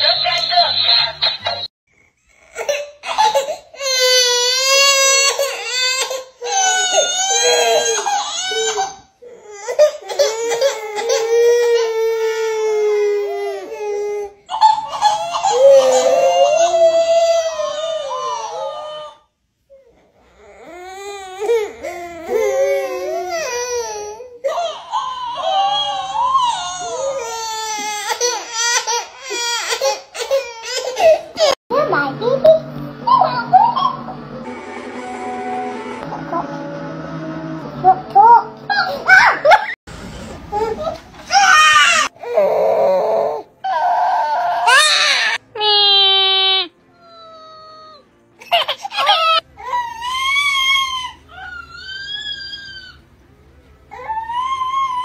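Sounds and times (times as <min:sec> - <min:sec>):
baby crying: 0:02.2 - 0:31.6, 0:40.5 - 0:53.0.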